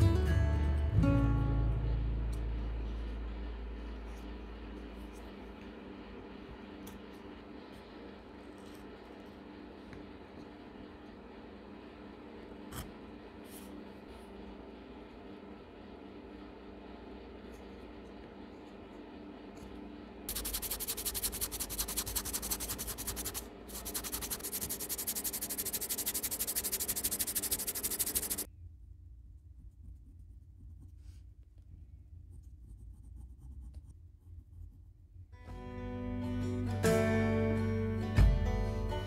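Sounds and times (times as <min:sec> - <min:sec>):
pencil scratching on paper: 0:20.3 - 0:28.5
sandpaper rubbing on wood: 0:20.3 - 0:28.5.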